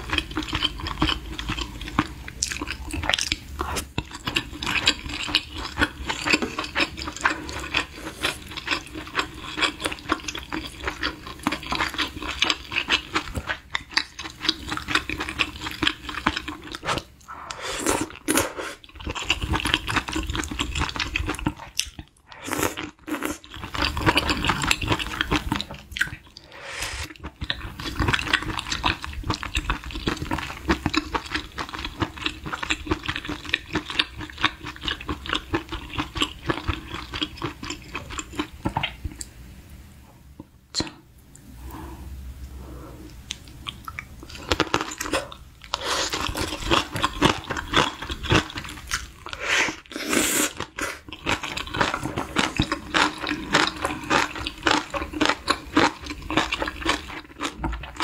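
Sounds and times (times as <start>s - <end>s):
wet chewing and mouth smacking: 0.0s - 26.4s, 27.0s - 39.3s, 43.1s - 50.0s, 50.6s - 58.0s.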